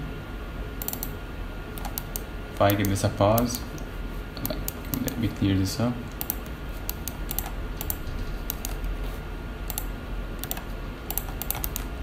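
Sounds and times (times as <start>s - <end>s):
faint steady hum: 0.0s - 12.0s
keyboard and mouse clicking: 0.8s - 1.2s, 1.8s - 5.3s, 6.1s - 9.0s, 9.7s - 12.0s.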